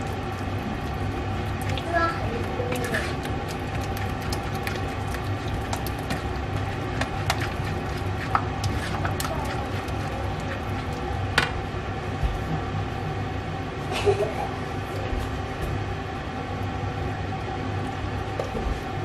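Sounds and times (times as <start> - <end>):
melted cheese squishing: 0.0 - 11.2
steady low hum: 0.0 - 19.0.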